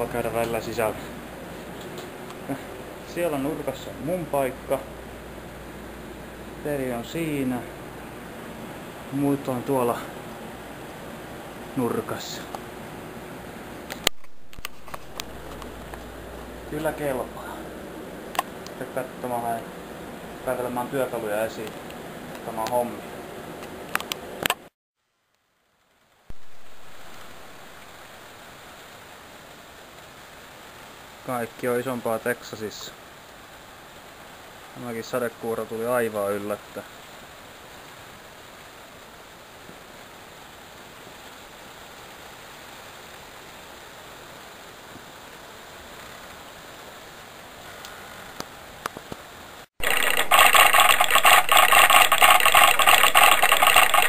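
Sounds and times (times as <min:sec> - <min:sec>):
rain falling on grass: 0:13.8 - 0:17.3, 0:25.1 - 0:54.0
rapid rattling noise: 0:49.8 - 0:54.0
sharp clicks: 0:49.8 - 0:54.0.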